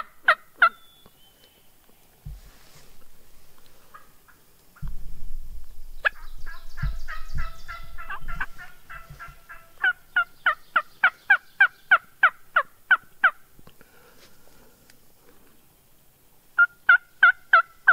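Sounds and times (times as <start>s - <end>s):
turkey yelping calls: 0.0s - 0.9s, 6.0s - 13.4s, 16.6s - 17.9s.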